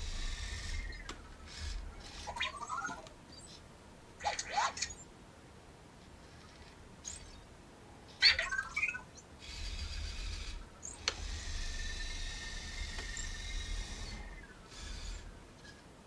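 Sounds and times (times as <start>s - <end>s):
whine of tread motors: 0.0s - 3.6s, 8.8s - 15.9s
robot electronic chirps: 0.1s - 3.1s
click: 11.0s - 11.2s.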